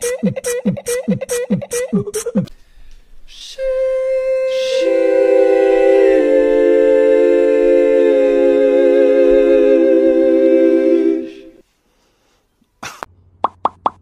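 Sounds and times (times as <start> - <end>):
a cappella voices singing chords: 3.3 - 11.6.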